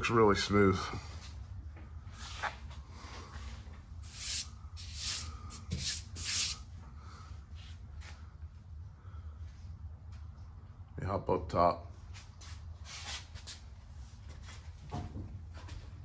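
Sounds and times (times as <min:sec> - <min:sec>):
steady low hum: 0:00.0 - 0:16.0
short rubbing swishes: 0:04.0 - 0:06.6.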